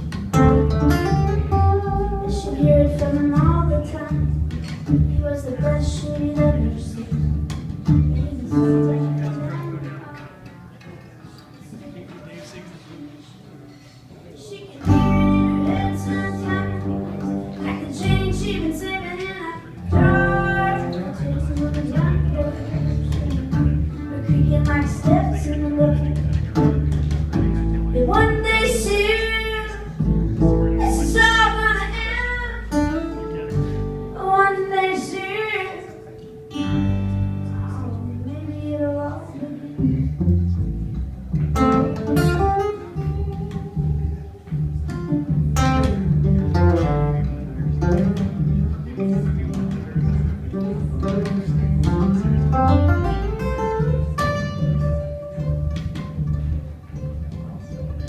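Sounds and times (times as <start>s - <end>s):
upright double bass: 0.0s - 9.9s, 14.9s - 35.1s, 36.4s - 58.0s
guitar: 0.0s - 58.0s
woman singing: 1.5s - 7.3s, 14.9s - 17.0s, 17.6s - 26.3s, 28.0s - 29.9s, 30.8s - 32.7s, 34.2s - 36.1s, 37.7s - 40.1s.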